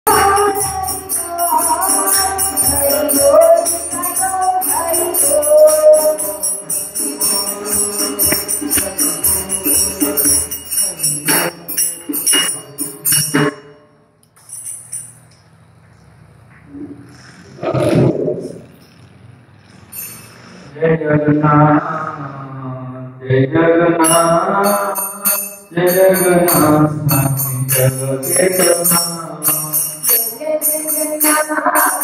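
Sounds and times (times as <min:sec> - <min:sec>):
group singing devotional melody: 0:00.0 - 0:13.6, 0:23.3 - 0:32.0
jingling metal percussion: 0:00.1 - 0:15.6, 0:18.7 - 0:20.8, 0:24.0 - 0:32.0.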